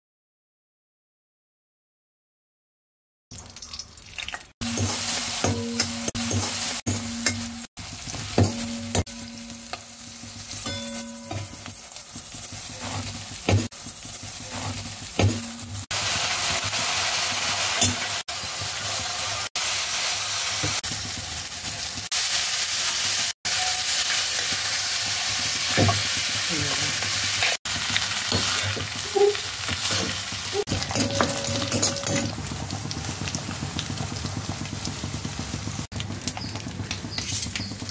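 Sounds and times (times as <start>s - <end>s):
vegetables sizzling in oil: 3.4s - 37.9s.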